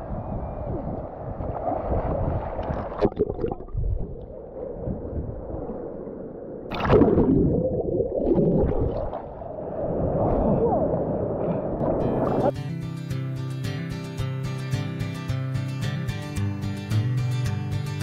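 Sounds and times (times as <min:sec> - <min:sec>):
water sloshing and gurgling: 0:01.2 - 0:12.5
water splash: 0:01.5 - 0:10.6
muffled underwater bubbling: 0:02.6 - 0:05.7, 0:06.7 - 0:09.5.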